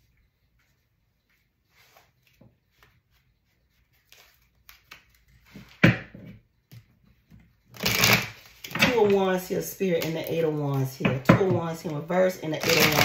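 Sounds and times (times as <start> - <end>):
cards rustling: 1.8 - 5.8, 7.7 - 13.0.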